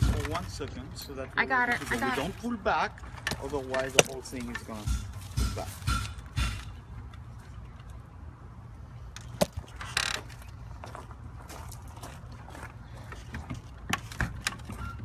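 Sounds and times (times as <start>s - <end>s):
sharp knock: 4.8s - 6.8s.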